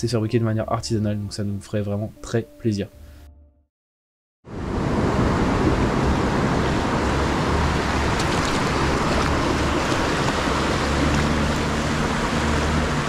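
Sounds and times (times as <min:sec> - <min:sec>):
surf washing over rocks: 0:04.5 - 0:13.0.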